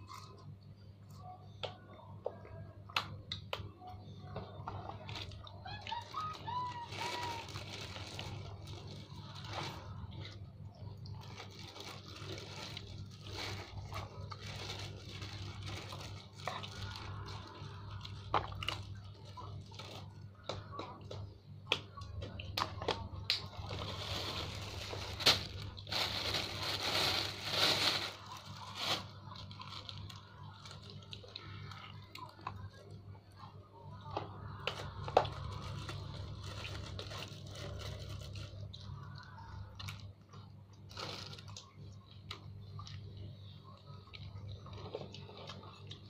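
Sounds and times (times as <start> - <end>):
paper rustling and crinkling: 5.1 - 10.1, 11.1 - 17.6, 23.5 - 31.0
child chewing food: 7.2 - 24.1, 29.4 - 46.0.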